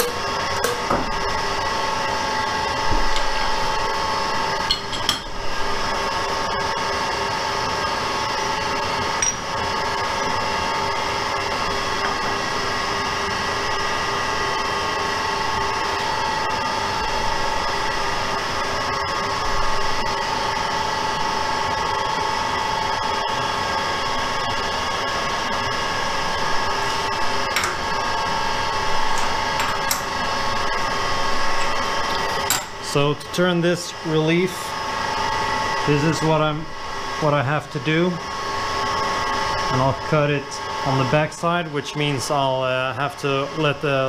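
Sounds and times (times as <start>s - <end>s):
metal lathe humming: 0.0s - 44.0s.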